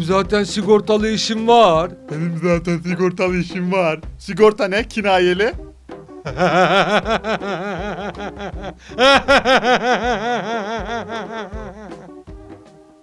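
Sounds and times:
man laughing hard: 6.3 - 12.2.

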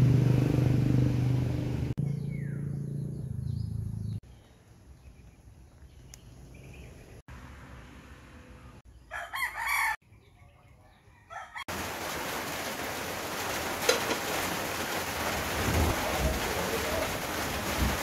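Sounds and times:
rooster crowing: 9.1 - 10.0, 11.0 - 11.7.

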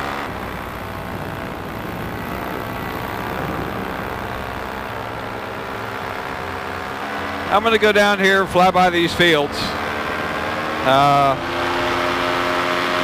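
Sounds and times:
paramotor engine droning: 0.0 - 13.0.

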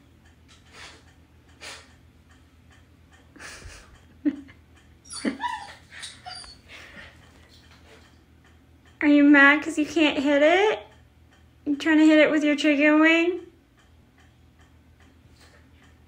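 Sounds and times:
puppy whining and yipping: 5.0 - 6.7.

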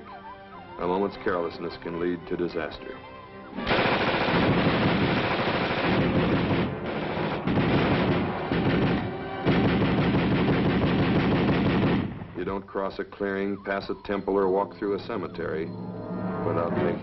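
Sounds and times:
automatic gunfire bursts: 3.6 - 12.2.

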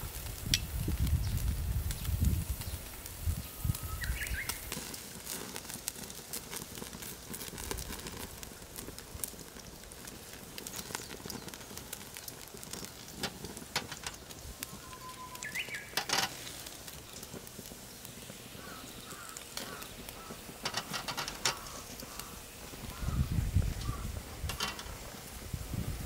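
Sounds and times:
meat sizzling on a grill: 0.0 - 26.0
bird chirping: 14.7 - 16.0.

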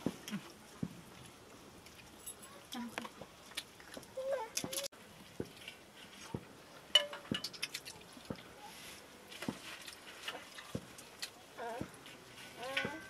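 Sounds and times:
spoons and glasses clinking: 7.0 - 7.9.

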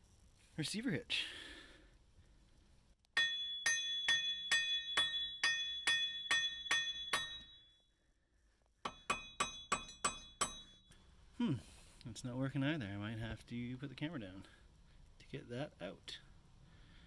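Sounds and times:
ringing metal-on-metal hammer blows: 3.2 - 7.9, 8.8 - 11.0.

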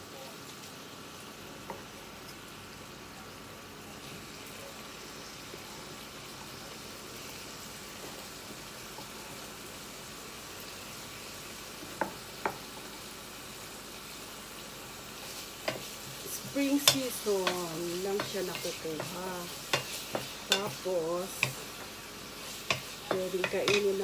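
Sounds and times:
vegetables sizzling in a frying pan: 0.0 - 24.0
spatula stirring: 15.2 - 24.0.

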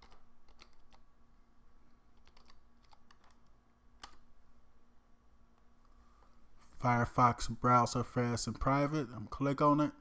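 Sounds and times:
computer keyboard keystrokes: 0.0 - 1.0, 2.1 - 4.2.

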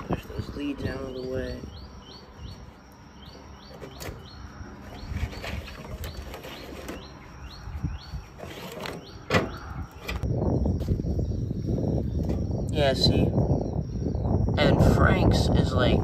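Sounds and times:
bird chirping: 0.0 - 14.7
scraping and knocking: 4.8 - 7.2, 8.3 - 10.2.

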